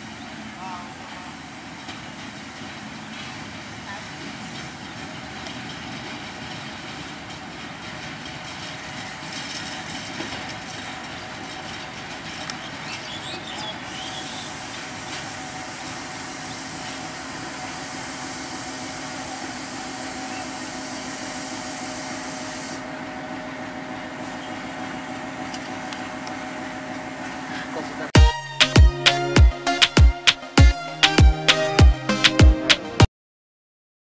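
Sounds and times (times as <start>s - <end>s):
locomotive engine running: 0.0s - 33.1s
steady high hiss: 13.9s - 22.9s.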